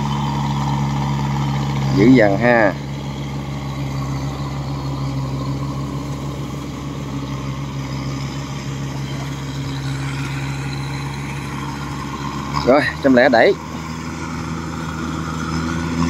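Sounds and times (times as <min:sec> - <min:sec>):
combine harvester engine drone: 0:00.0 - 0:16.0.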